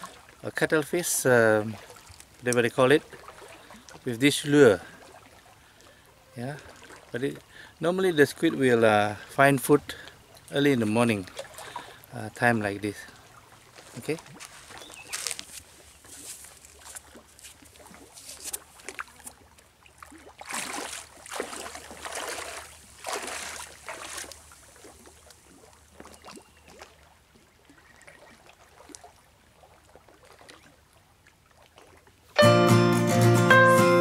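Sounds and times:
water trickling: 0.0s - 32.0s
footsteps splashing through water: 1.6s - 4.1s, 11.2s - 12.0s, 13.1s - 32.0s.

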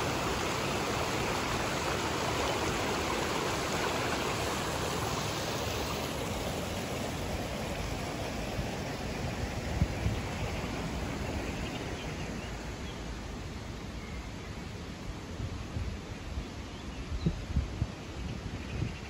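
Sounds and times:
stream water rushing over stones: 0.0s - 13.6s.

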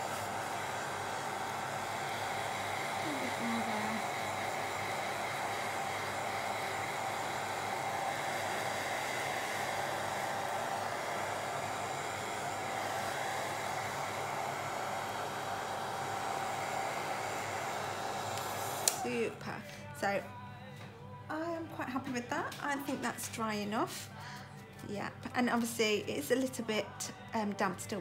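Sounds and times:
hair dryer blowing air: 0.0s - 19.5s.

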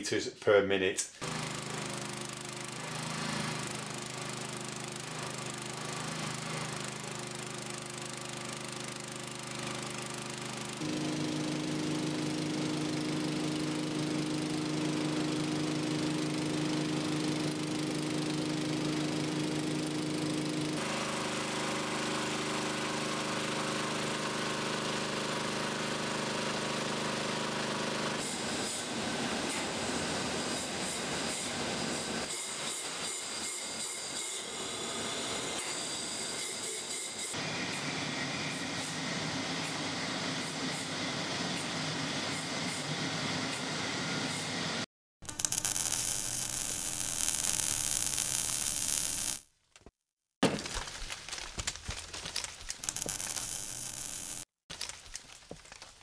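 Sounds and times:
petrol engine running steadily: 10.8s - 21.1s.

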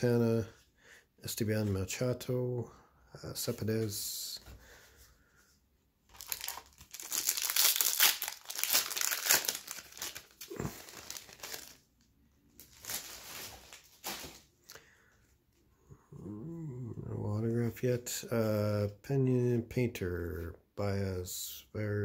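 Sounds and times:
plastic wrapper tearing and crinkling: 6.1s - 14.5s.

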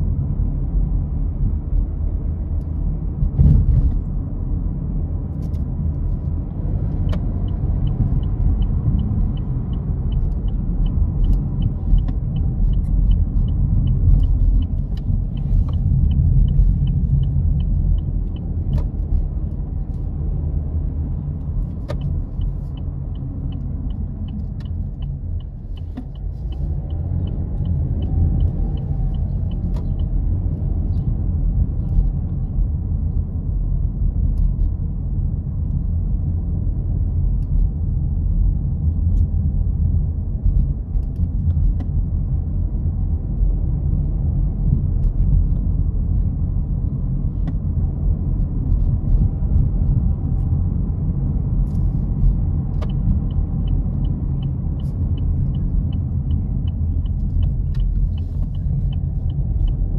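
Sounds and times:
car road rumble: 0.0s - 59.9s
turn signal ticking: 5.4s - 32.4s, 47.2s - 59.9s.

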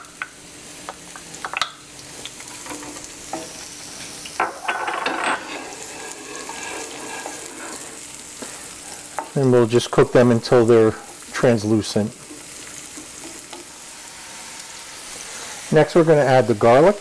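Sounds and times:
onions sizzling in oil: 0.0s - 17.0s
wooden spoon scraping pan: 4.5s - 8.6s.

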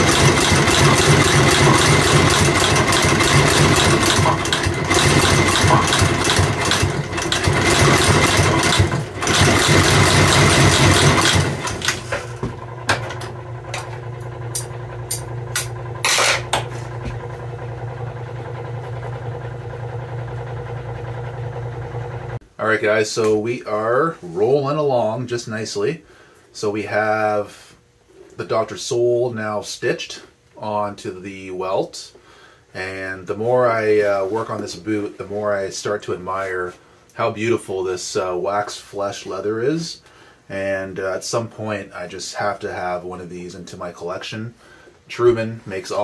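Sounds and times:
stitching machine clattering: 0.0s - 16.6s
machine motor humming: 0.0s - 22.4s.

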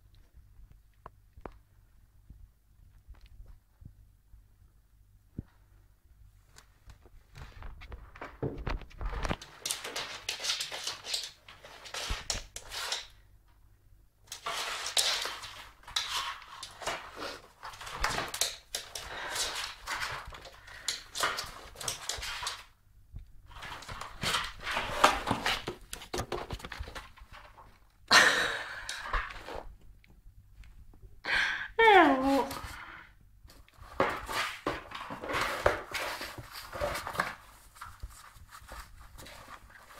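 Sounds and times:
cardboard box scraping on wood floor: 23.6s - 25.8s, 33.9s - 37.5s.

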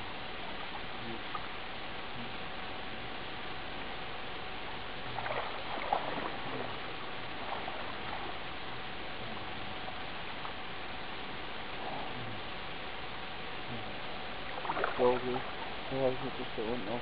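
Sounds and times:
steady hiss: 0.0s - 17.0s
water sloshing and splashing: 4.8s - 8.9s, 14.4s - 15.9s.

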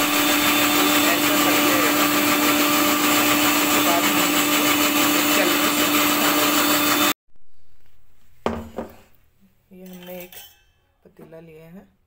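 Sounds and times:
mixer grinder motor hum: 0.0s - 7.2s.

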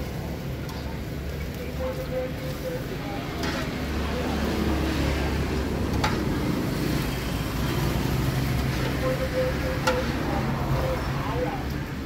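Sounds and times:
passing traffic rumble: 0.0s - 12.0s.

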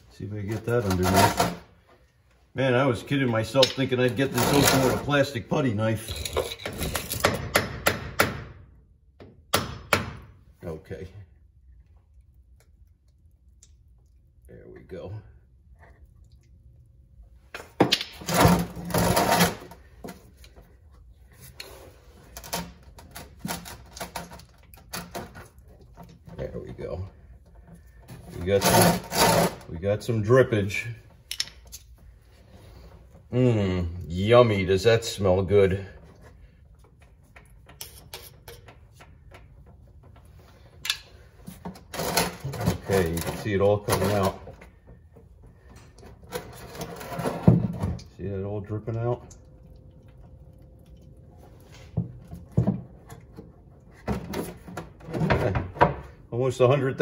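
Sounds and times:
oil dripping into plastic bucket: 48.0s - 52.5s.

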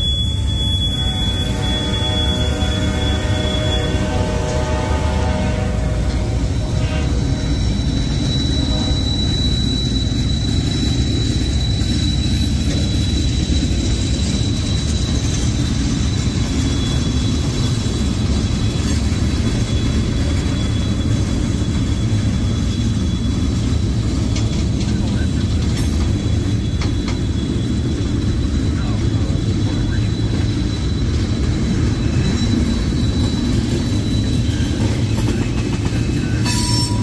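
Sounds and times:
train wheels rumbling on rails: 0.0s - 37.0s.

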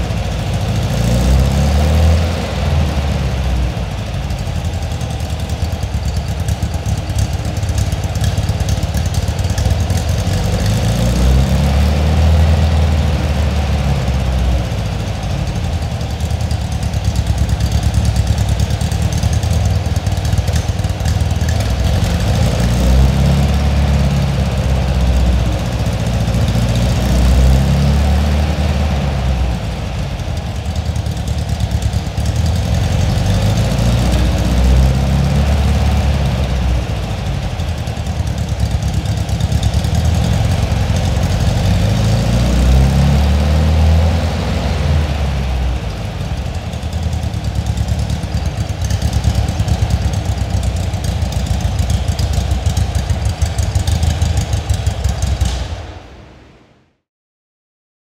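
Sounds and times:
car engine idling: 0.0s - 56.7s.

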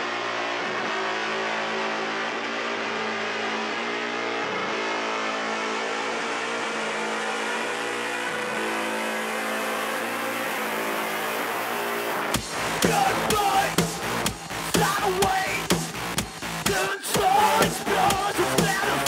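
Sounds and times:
distorted band drone: 0.0s - 19.0s
drums and full band crashing: 12.4s - 19.0s.

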